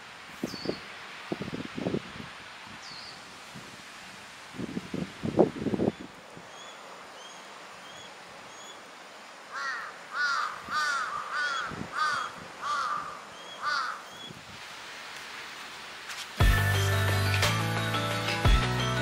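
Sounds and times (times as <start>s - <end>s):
crow cawing: 9.5s - 14.3s.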